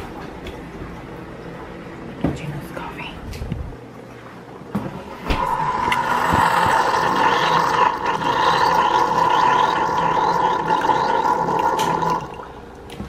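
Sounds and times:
coffee maker pump humming: 0:03.8 - 0:13.0
coffee streaming into mug: 0:05.4 - 0:12.5.

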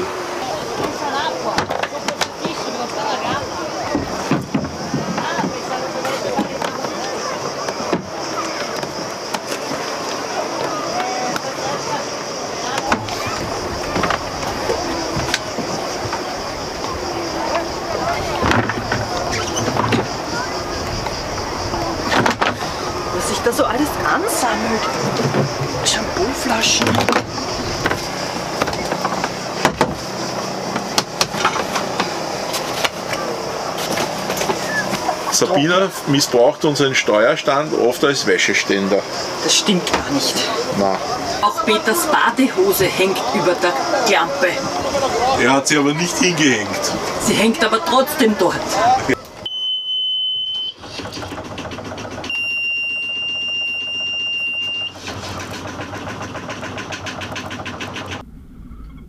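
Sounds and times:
boat engine clattering: 0:00.0 - 0:49.6, 0:50.2 - 0:59.0
steady high buzzer beep: 0:49.5 - 0:50.8
steady low hum: 0:58.1 - 0:59.0.

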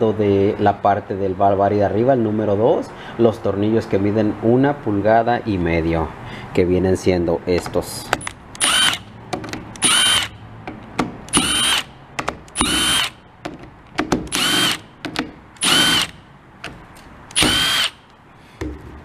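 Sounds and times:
cordless driver motor whine: 0:08.6 - 0:09.1, 0:09.8 - 0:10.3, 0:11.3 - 0:11.9, 0:12.6 - 0:13.2, 0:14.3 - 0:14.8, 0:15.6 - 0:16.2, 0:17.3 - 0:18.0.

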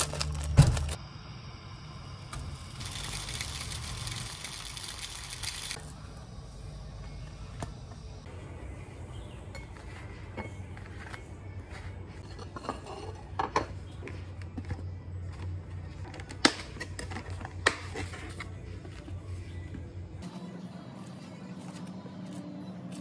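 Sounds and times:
steady low hum: 0:00.0 - 0:04.8, 0:05.8 - 0:12.4
kitchenware clattering: 0:12.2 - 0:13.9.

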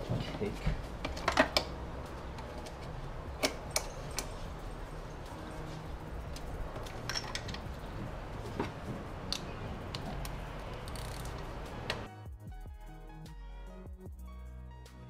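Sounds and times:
tools clicking and tapping: 0:00.9 - 0:04.7, 0:05.3 - 0:12.1.

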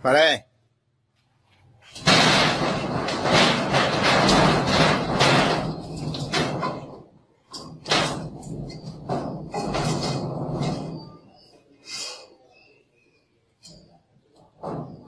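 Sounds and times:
dog scrambling on metal door: 0:02.0 - 0:11.2
metal door rattling and knocking: 0:02.0 - 0:11.3, 0:14.5 - 0:15.0.

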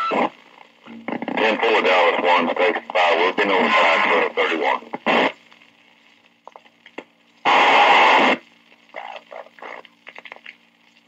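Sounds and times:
slowed police radio recording: 0:00.0 - 0:05.7, 0:07.4 - 0:10.2
radio static burst: 0:00.0 - 0:06.2, 0:07.4 - 0:10.4
faint crackles: 0:00.0 - 0:11.0
low steady hum: 0:00.0 - 0:11.0.

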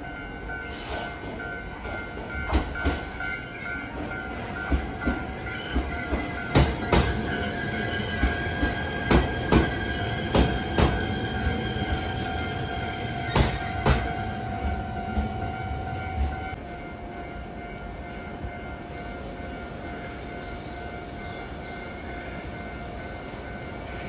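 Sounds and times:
train hum: 0:00.0 - 0:24.0
train wheels clacking on rail joints: 0:00.9 - 0:12.3, 0:13.2 - 0:16.6.

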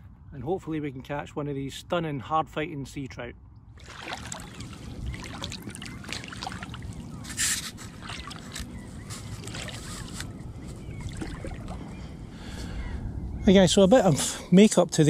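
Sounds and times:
water splashing around wading legs: 0:03.8 - 0:12.0.

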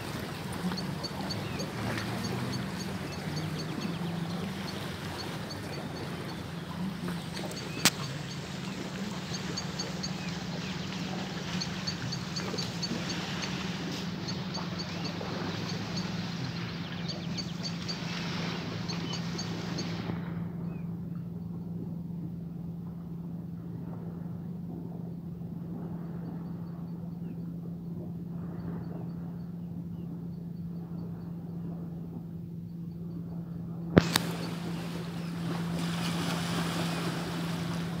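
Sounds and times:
water lapping at rocks: 0:00.0 - 0:20.4, 0:33.9 - 0:38.0
motorboat engine hum: 0:00.0 - 0:38.0.

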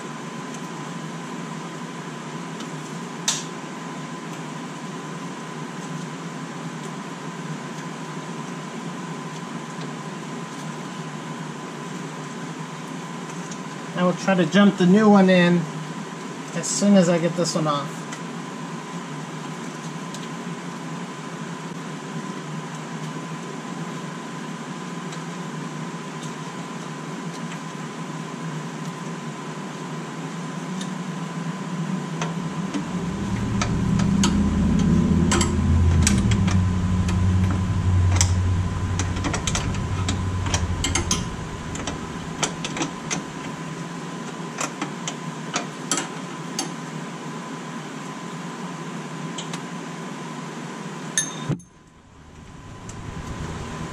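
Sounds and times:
steady hum with faint whine: 0:30.3 - 0:44.1, 0:51.6 - 0:53.9
low rumble: 0:31.7 - 0:43.7, 0:51.8 - 0:53.9.

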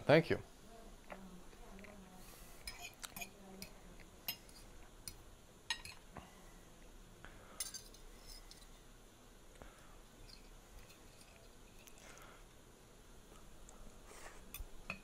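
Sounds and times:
fork clinking against a bowl: 0:02.7 - 0:03.7, 0:04.3 - 0:06.0.

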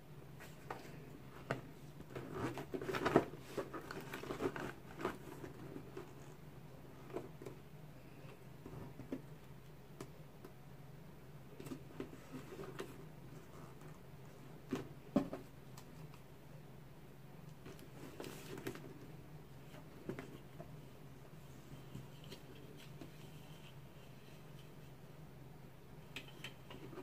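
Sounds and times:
rustles and light taps: 0:17.5 - 0:20.9.

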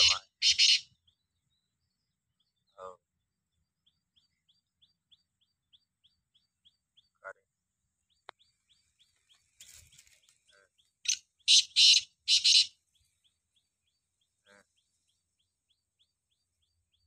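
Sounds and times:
bird harsh grating call: 0:00.0 - 0:00.9, 0:10.5 - 0:12.7
faint small bird chirps: 0:00.0 - 0:17.0.

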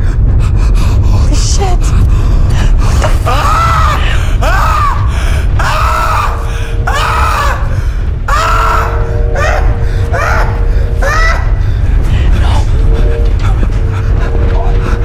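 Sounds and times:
steady low drone: 0:00.0 - 0:15.0
man wailing and sobbing: 0:03.0 - 0:12.0.

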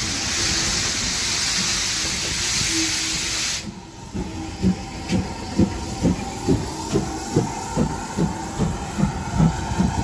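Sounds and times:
steam hissing: 0:00.0 - 0:10.0
slow low locomotive beats: 0:03.6 - 0:10.0.

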